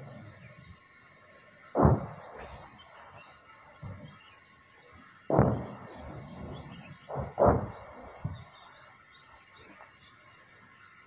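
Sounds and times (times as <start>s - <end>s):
birds chirping: 0.0s - 11.0s
distant artillery explosions: 1.7s - 4.3s, 5.3s - 8.9s.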